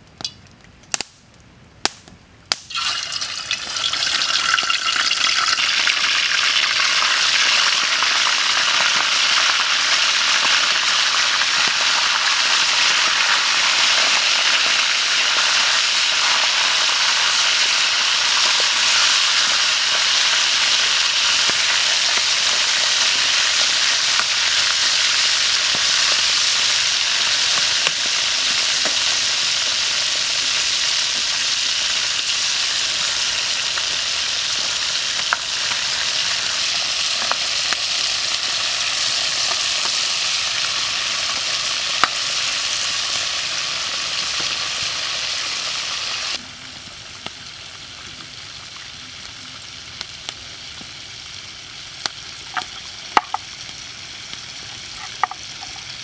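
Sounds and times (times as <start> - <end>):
chicken frying in hot oil: 2.5 - 56.0.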